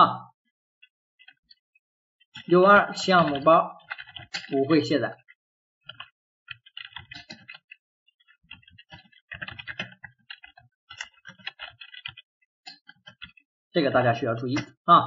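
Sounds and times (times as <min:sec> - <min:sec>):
computer keyboard typing: 0:02.4 - 0:13.4.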